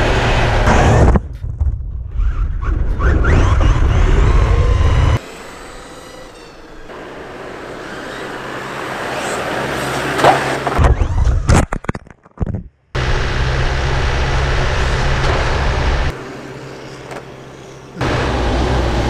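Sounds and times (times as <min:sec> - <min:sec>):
rising motor whines: 0:03.0 - 0:09.9.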